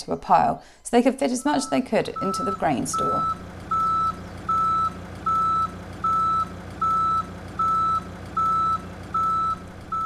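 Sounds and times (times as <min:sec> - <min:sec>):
reversing alarm beeps: 0:01.4 - 0:10.0
engine running: 0:02.0 - 0:10.0.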